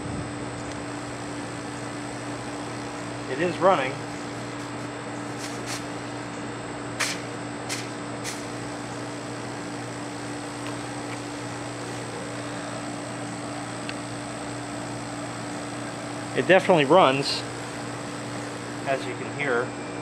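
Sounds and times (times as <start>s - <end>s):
compressor humming: 0.0s - 20.0s.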